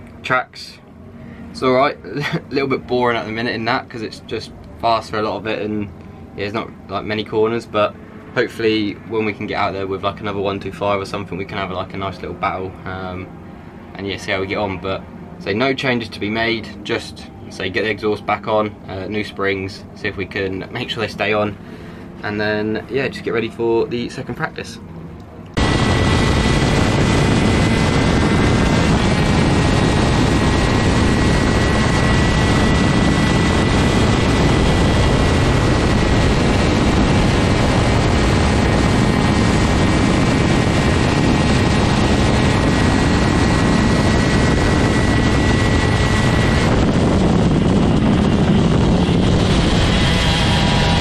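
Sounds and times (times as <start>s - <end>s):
thin steady whine: 0.0s - 51.0s
kart engine at speed: 25.6s - 51.0s
wind rush: 25.6s - 51.0s.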